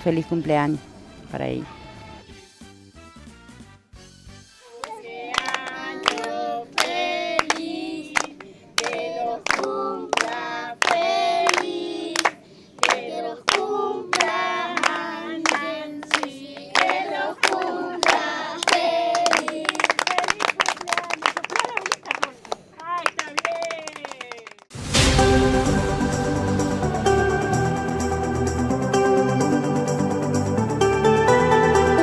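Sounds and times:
people singing a birthday song: 4.6s - 20.0s
hands clapping: 4.8s - 24.7s.

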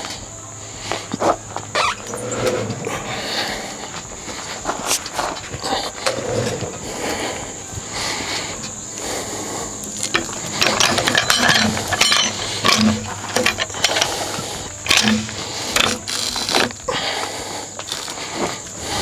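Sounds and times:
hooks clicking and knocking on log: 10.0s - 16.9s.

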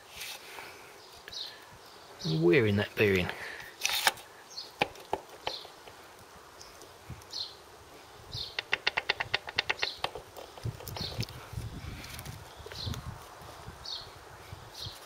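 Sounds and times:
sharp metallic clicks: 8.6s - 11.3s.

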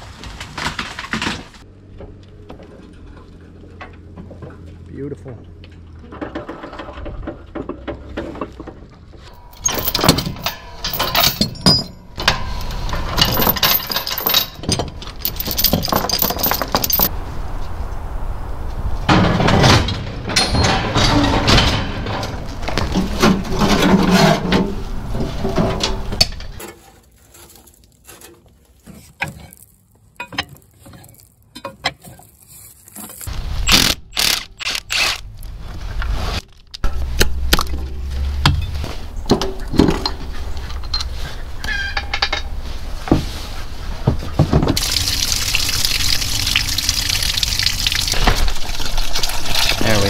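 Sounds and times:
water splashing into a bucket: 44.8s - 50.0s.

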